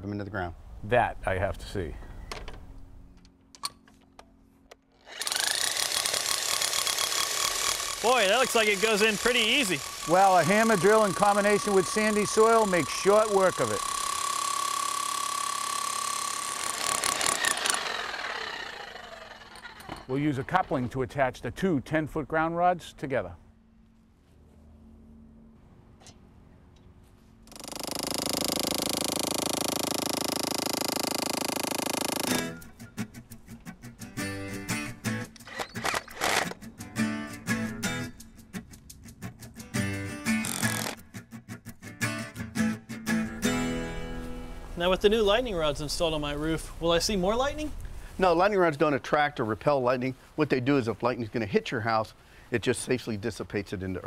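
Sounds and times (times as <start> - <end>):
hammer drill hammering: 5.0 - 20.1, 27.5 - 32.6, 40.4 - 41.0.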